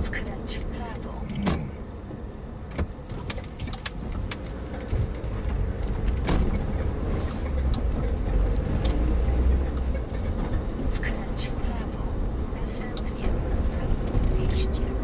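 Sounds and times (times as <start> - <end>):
engine and road rumble: 0.0 - 15.0
sharp clicks and knocks: 0.5 - 9.0.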